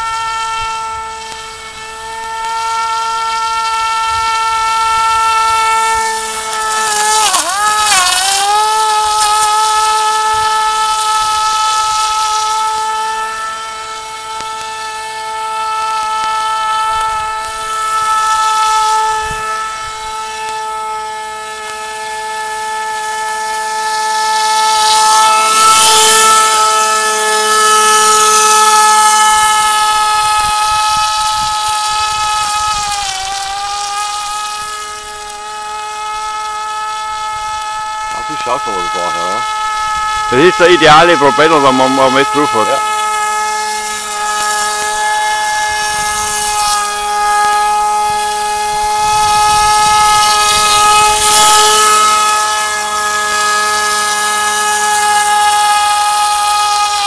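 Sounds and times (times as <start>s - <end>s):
model boat motor whining: 0.0s - 57.0s.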